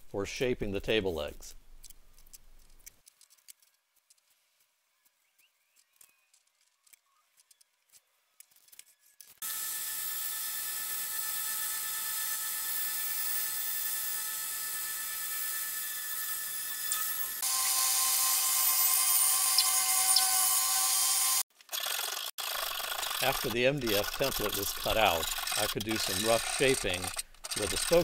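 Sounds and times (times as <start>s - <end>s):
faint clicks and rustles: 1.5s - 9.4s
bandsaw cutting board: 9.4s - 28.0s.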